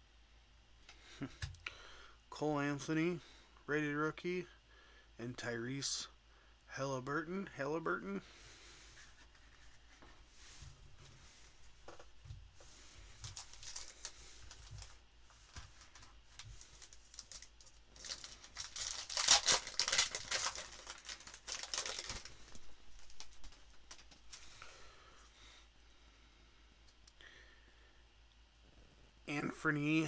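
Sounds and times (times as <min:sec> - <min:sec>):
wrapper crinkling and tearing: 0:13.2 - 0:24.6.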